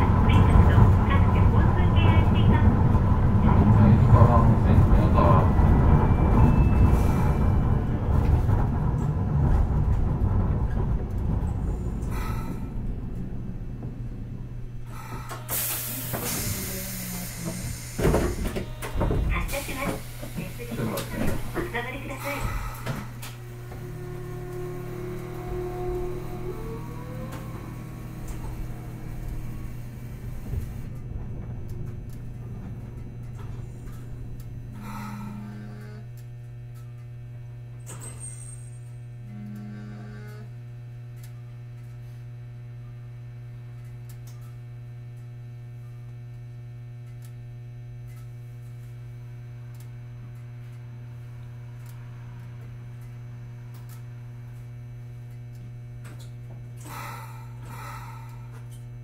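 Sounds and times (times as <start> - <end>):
low rumble: 0.0 - 37.9
tram electrical hum: 0.0 - 59.0
short low tones: 21.6 - 37.7, 39.2 - 40.6.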